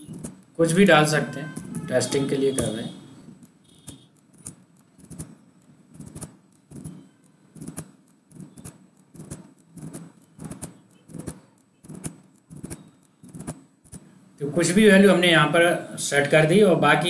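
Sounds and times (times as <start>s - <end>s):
mouse clicks: 0.0s - 0.6s, 1.4s - 14.2s
computer keyboard typing: 0.0s - 15.2s.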